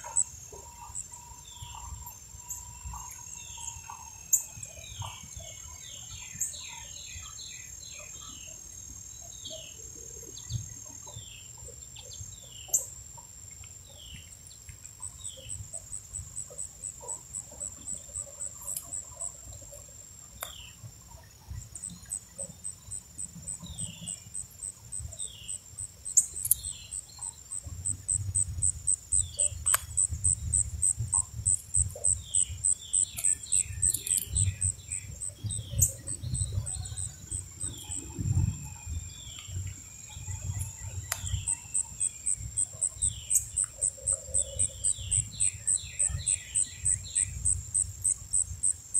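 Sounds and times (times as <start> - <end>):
high pulsing chirp: 21.7 - 48.9.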